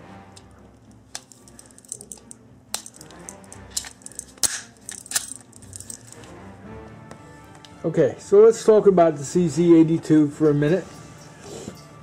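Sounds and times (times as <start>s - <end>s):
pistol slide metallic clicks: 2.8s - 5.4s.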